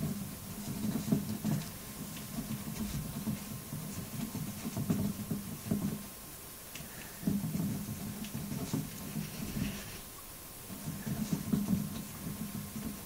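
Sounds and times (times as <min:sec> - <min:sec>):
hamster wheel spinning: 0:00.0 - 0:06.1, 0:07.2 - 0:10.1, 0:10.7 - 0:13.0.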